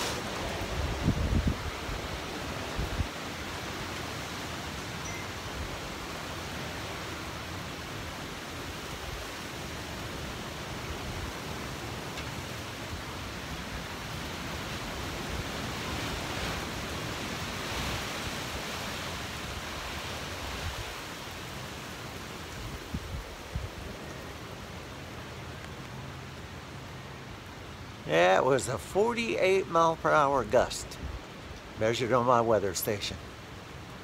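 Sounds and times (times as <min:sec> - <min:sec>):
strong wind gusting: 0:00.0 - 0:07.3, 0:22.5 - 0:24.4
heavy rain: 0:00.0 - 0:34.0.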